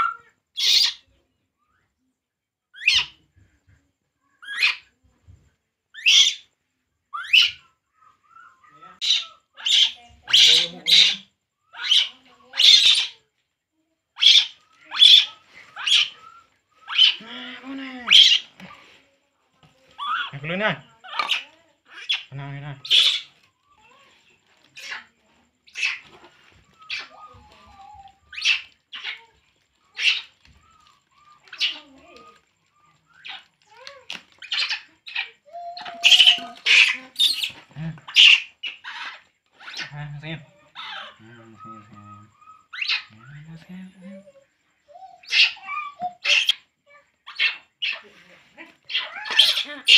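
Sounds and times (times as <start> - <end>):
baby monkey crying: 6.0 - 6.4, 7.1 - 13.2, 14.2 - 18.7, 20.0 - 24.2, 25.7 - 26.1, 26.7 - 32.4, 33.1 - 48.0, 48.8 - 49.9.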